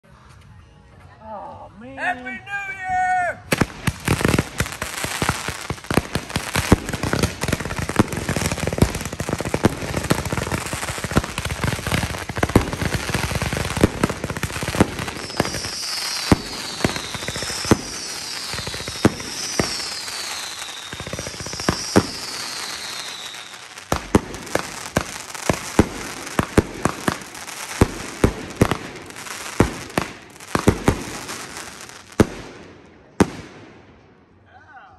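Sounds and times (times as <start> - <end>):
sharp firework bangs: 3.5 - 33.9
firework launches and crackling bursts: 3.5 - 34.1
falling firework whistles: 14.4 - 32.2.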